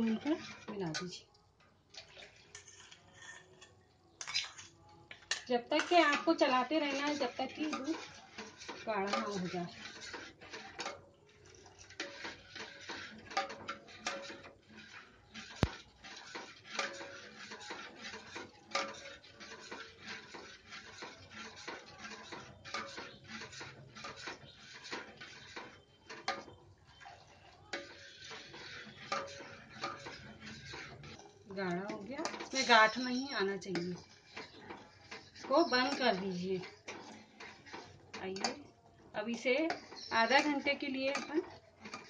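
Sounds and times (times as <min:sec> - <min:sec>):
spoon scraping metal pot: 0:00.0 - 0:42.0.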